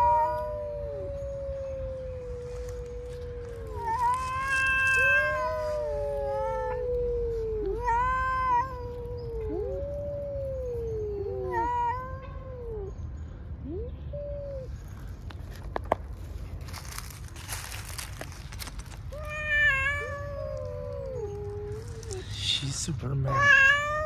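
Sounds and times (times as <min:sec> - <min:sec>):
cat wailing high: 0:00.0 - 0:13.0, 0:19.1 - 0:22.4, 0:23.2 - 0:24.0
cats yowling: 0:00.0 - 0:15.0, 0:16.8 - 0:24.0.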